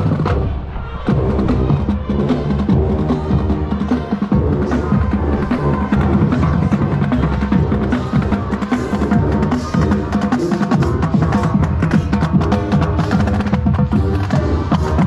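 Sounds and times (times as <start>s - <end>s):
drumline beating: 0.0s - 15.0s.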